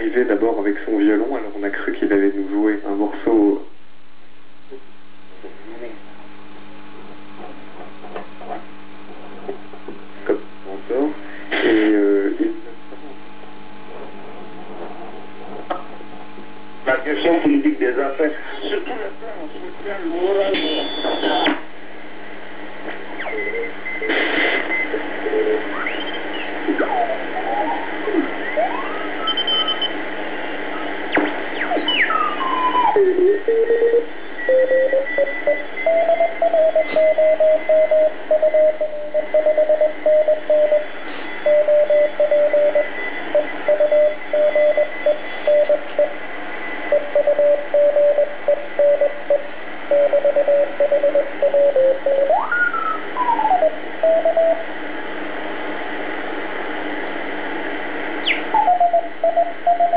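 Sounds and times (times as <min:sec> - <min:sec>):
radio band hiss: 0:00.0 - 0:59.9
radio tuning whistles: 0:20.4 - 0:21.6, 0:23.1 - 0:54.7, 0:56.8 - 0:59.9
morse code beat-note tone: 0:31.9 - 0:40.9.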